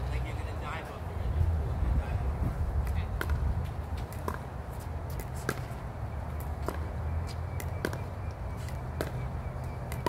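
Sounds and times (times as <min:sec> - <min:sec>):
paddles hitting plastic ball: 0:02.8 - 0:04.5, 0:05.1 - 0:05.8.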